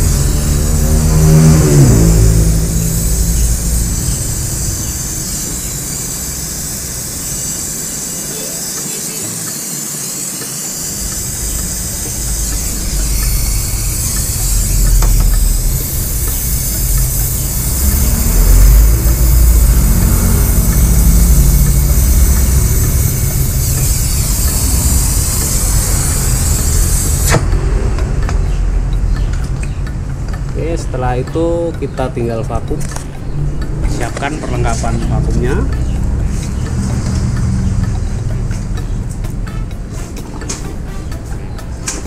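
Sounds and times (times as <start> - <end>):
brazing torch flame hissing: 0.0 - 27.6.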